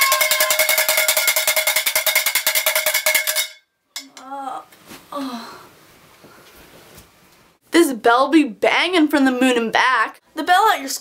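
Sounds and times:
cowbell rung rapidly: 0.0 - 3.6.

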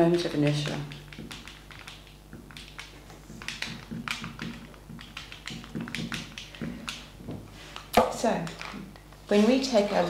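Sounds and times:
marker pen tapping on glass: 1.0 - 7.0.

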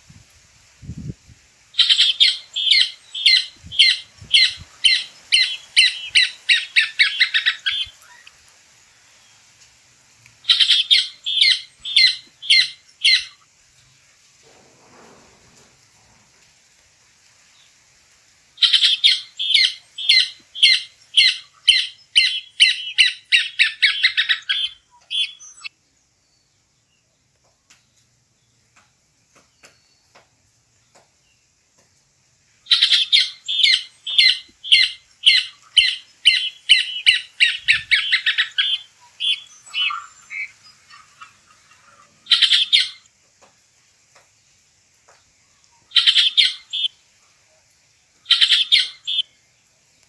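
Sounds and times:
bird singing harsh repeated notes: 1.7 - 8.2, 10.4 - 13.5, 18.6 - 25.7, 32.6 - 43.1, 45.9 - 46.9, 48.2 - 49.3.

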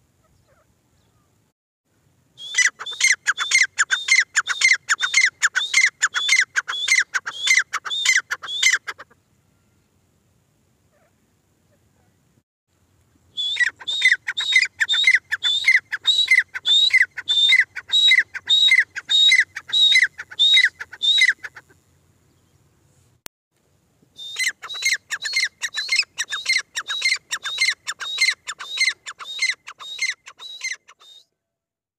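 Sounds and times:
francolin calling: 2.4 - 9.9, 13.3 - 22.6, 24.2 - 31.3.

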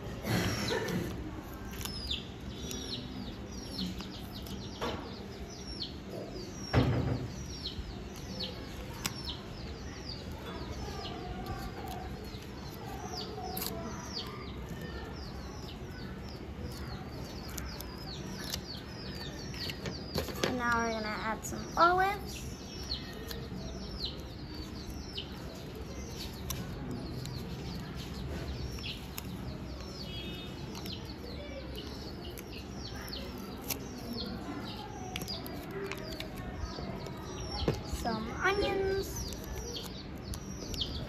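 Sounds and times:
birds chirping: 0.0 - 41.0
thump: 6.7 - 7.3.

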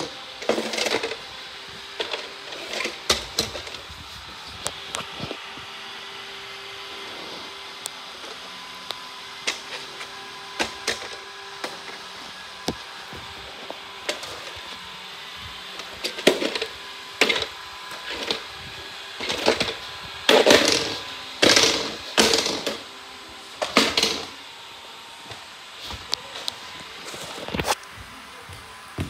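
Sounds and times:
robot cleaners humming: 0.0 - 29.0.

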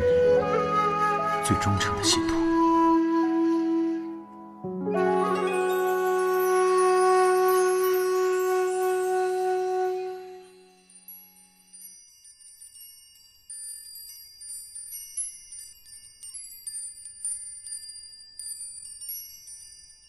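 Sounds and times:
tinkling chime music: 4.9 - 20.0.

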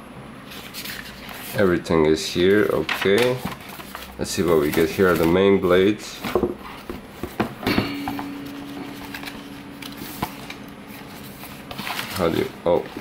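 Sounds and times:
faint low hum: 7.6 - 13.0.

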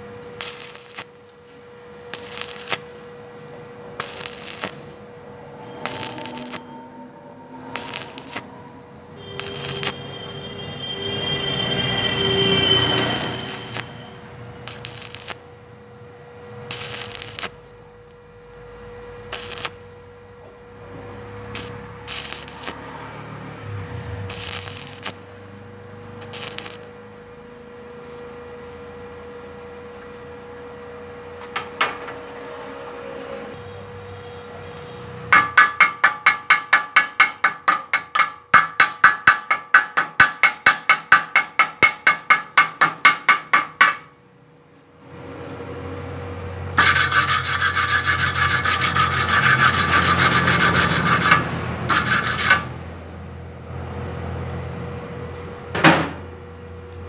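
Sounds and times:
harsh scrubbing over weld: 2.2 - 3.0, 4.0 - 5.0, 5.6 - 6.9, 7.5 - 15.4, 16.7 - 17.6, 19.3 - 19.8, 21.6 - 23.2, 24.3 - 25.2, 26.2 - 26.9, 46.8 - 52.8
chipping hammer tapping metal: 14.7 - 15.4, 21.6 - 22.8, 24.3 - 25.2, 35.3 - 44.2.

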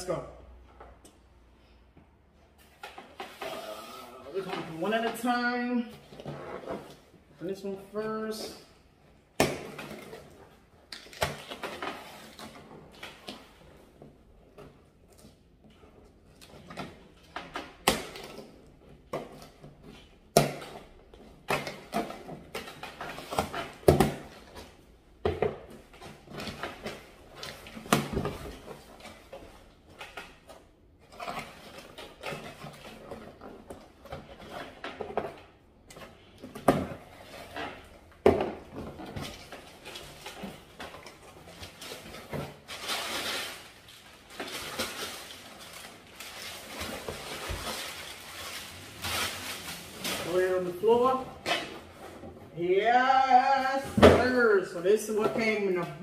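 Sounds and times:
cardboard flaps rustling: 9.6 - 52.5
packing paper rustling: 39.0 - 52.4.

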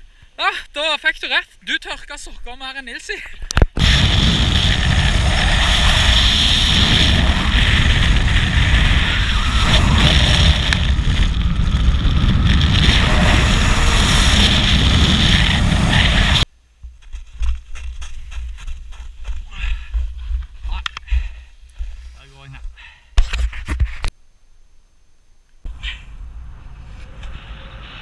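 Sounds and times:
wind rushing on microphone: 3.8 - 16.5, 25.7 - 28.0.

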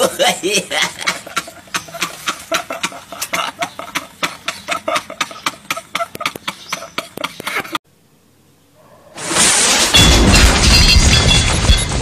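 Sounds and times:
men laughing hard: 0.0 - 7.8.

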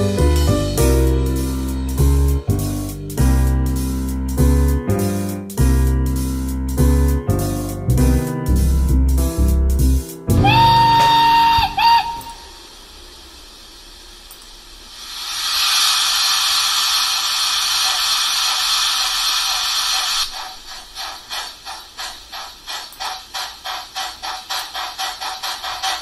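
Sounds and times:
steam exhaust chuffs: 0.0 - 26.0
model train whistle: 10.4 - 12.6
steam hiss: 10.4 - 26.0.

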